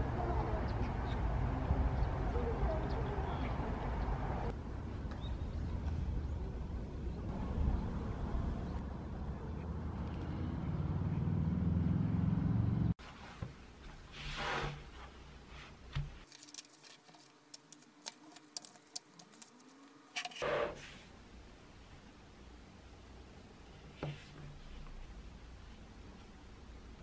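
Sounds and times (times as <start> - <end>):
paper rustling: 15.5 - 20.4
book pages turning: 15.9 - 20.4.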